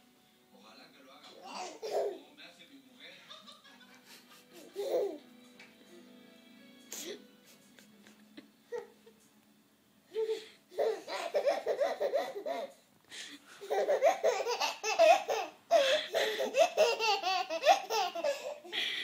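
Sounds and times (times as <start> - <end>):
toddler laughing: 1.4 - 2.2, 4.0 - 5.2, 10.2 - 12.8, 13.6 - 18.7.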